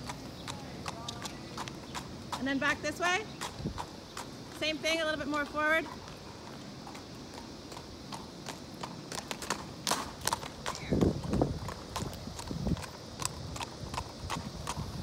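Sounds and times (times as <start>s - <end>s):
horse hooves on pavement: 0.0s - 15.0s.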